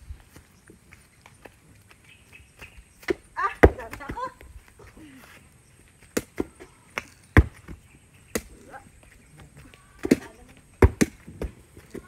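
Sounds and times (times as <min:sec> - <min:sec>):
basketball bouncing on dirt: 0:02.6 - 0:04.6, 0:06.0 - 0:12.0.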